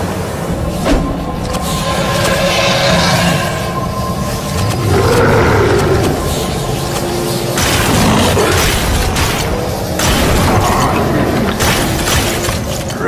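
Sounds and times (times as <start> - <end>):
cartoon booms and mechanical noise: 4.5 - 12.9.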